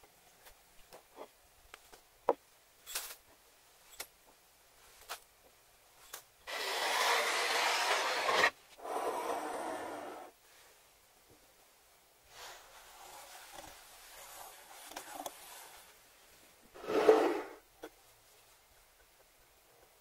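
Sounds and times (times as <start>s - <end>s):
scraping across wooden countertop: 6.5s - 10.3s, 16.8s - 17.6s.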